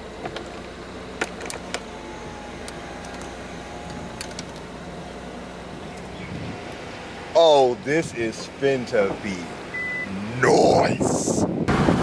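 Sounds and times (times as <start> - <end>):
electric motor whir: 1.4 - 7.3.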